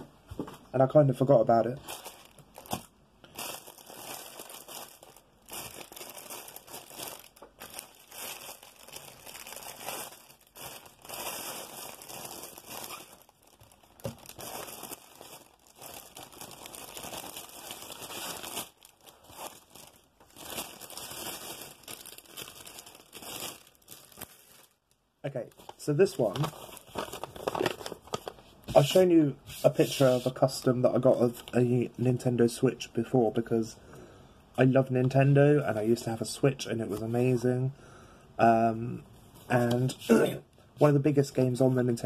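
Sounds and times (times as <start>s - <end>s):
plastic packaging crinkling: 1.6s - 29.1s.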